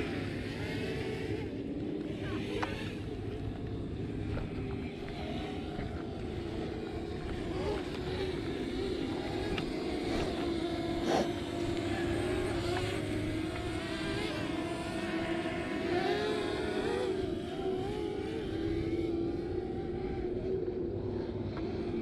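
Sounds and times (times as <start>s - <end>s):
wind rumble on microphone: 0.0s - 15.7s
drone propellers buzzing: 0.0s - 22.0s.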